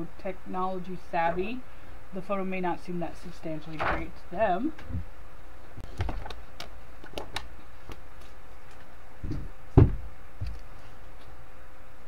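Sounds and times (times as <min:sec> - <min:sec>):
background hiss: 0:00.0 - 0:12.0
faint hum: 0:00.0 - 0:12.0
dull thump: 0:09.2 - 0:10.1.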